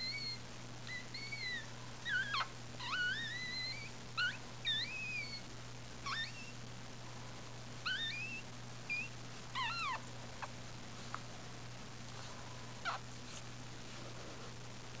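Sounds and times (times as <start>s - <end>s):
puppy squeaking: 0.0s - 5.4s, 6.0s - 6.6s, 7.8s - 10.5s, 12.8s - 13.0s.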